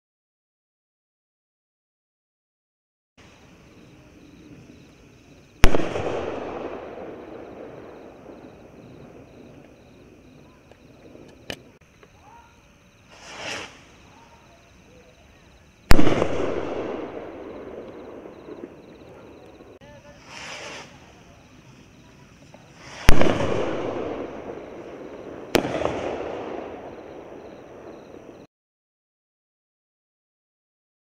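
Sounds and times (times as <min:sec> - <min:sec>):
firework bang with echo: 0:05.6 - 0:08.6, 0:15.9 - 0:19.0, 0:22.9 - 0:27.9
rocket whooshing: 0:13.1 - 0:14.1, 0:20.2 - 0:21.2.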